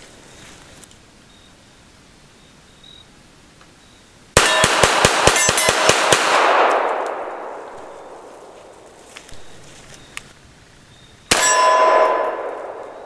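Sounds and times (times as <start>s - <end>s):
pistol shots: 4.4s - 8.9s, 11.3s - 13.0s
bullets clanging off steel target: 11.3s - 12.9s.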